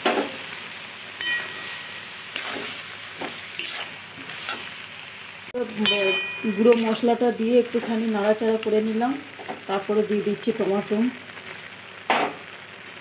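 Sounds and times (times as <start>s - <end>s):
vegetables sizzling in a pan: 0.0s - 13.0s
metal spatula scraping a pan: 1.2s - 4.8s, 5.8s - 7.3s.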